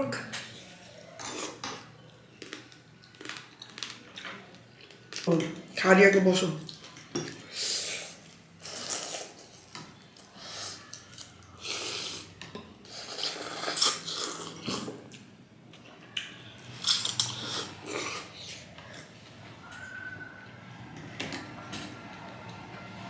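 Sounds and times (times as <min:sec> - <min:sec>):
people slurping noodles: 0:10.3 - 0:15.0, 0:16.8 - 0:19.1.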